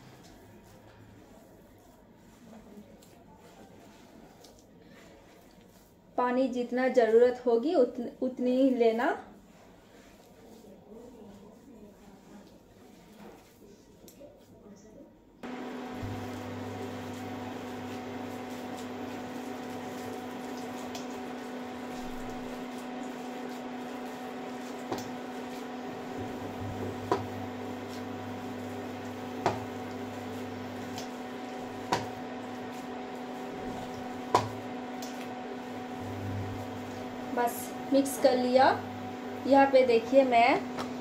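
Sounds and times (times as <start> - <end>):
electrical hum: 15.4 - 41.0
wet mixture squishing by hand: 15.7 - 38.2.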